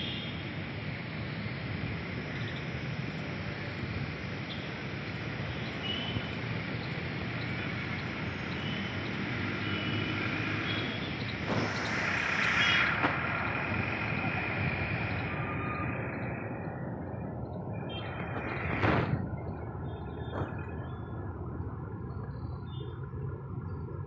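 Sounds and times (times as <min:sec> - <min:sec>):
distant traffic hum: 0:00.0 - 0:24.0
rushing hiss: 0:09.9 - 0:17.0.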